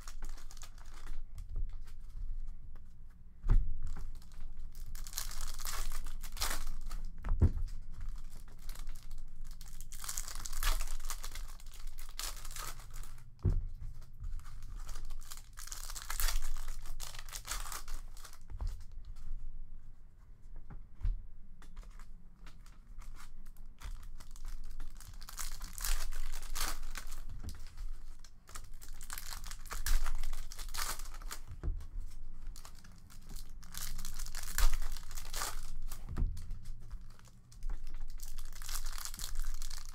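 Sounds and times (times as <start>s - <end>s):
card pack wrappers tearing and crinkling: 0.0s - 1.2s, 4.1s - 7.2s, 8.2s - 13.2s, 14.4s - 18.4s, 23.8s - 31.5s, 32.5s - 36.0s, 36.6s - 39.9s.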